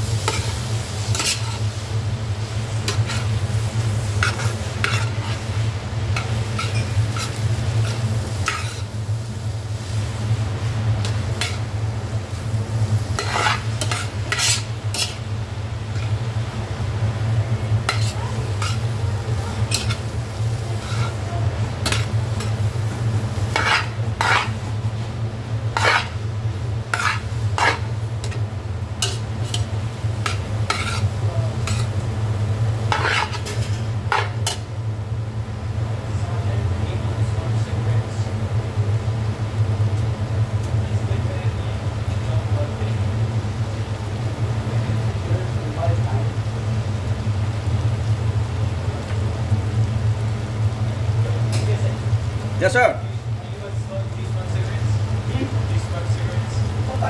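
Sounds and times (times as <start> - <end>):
food sizzling in pot: 0.0 - 35.8, 38.3 - 57.0
steady low hum: 0.0 - 57.0
metal utensil clinking and scraping: 0.3 - 1.6, 6.2 - 8.9, 13.2 - 15.2, 17.9 - 18.9, 19.5 - 20.0, 20.8 - 21.2, 21.8 - 22.6, 23.6 - 24.6, 25.8 - 26.2, 26.9 - 28.4, 29.0 - 29.7, 30.3 - 31.9, 32.9 - 34.6.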